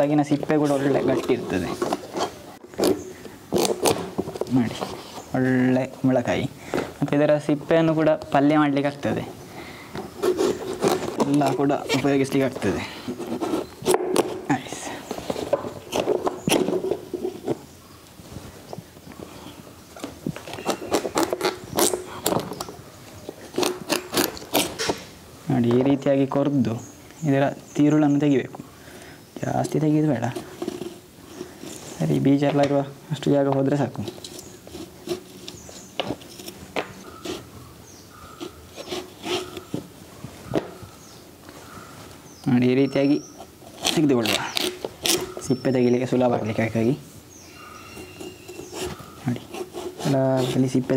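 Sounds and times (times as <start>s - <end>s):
knife cutting and scraping gourd: 0.0s - 6.3s, 10.0s - 17.8s, 20.0s - 25.1s, 29.4s - 32.7s, 33.3s - 40.8s, 43.0s - 50.9s.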